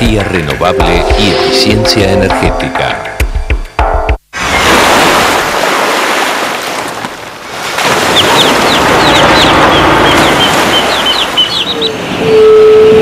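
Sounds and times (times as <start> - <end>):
short high bird chirps: 9.0 - 11.9.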